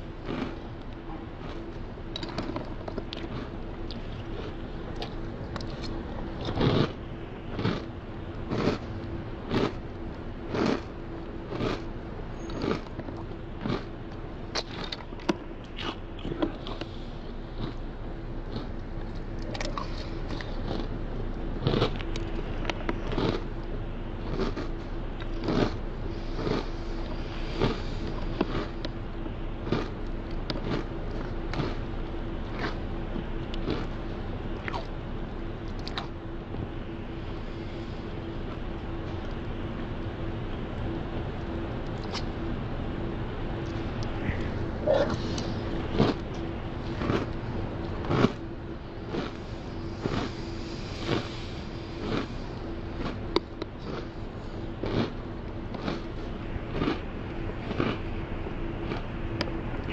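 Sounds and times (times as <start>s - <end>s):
faint steady hum: 0.0s - 59.9s
cereal crunching: 24.3s - 25.8s, 48.1s - 48.4s.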